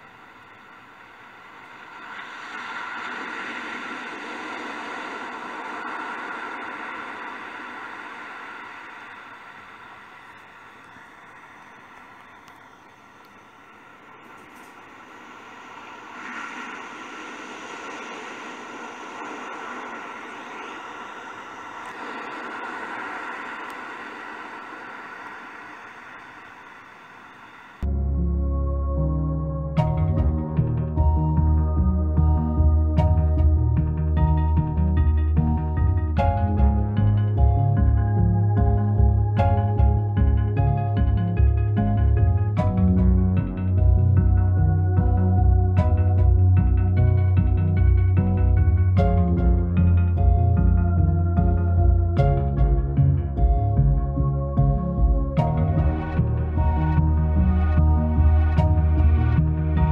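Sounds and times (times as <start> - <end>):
ocean wave washing in: 0.0 - 27.8.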